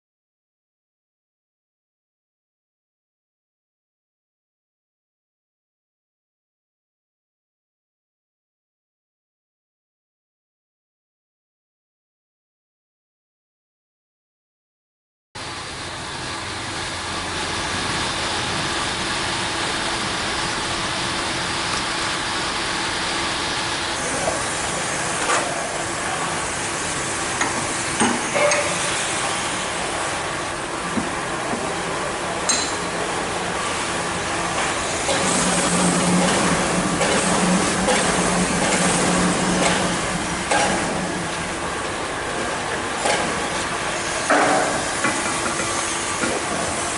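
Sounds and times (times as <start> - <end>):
workshop hiss: 15.4 - 46.9.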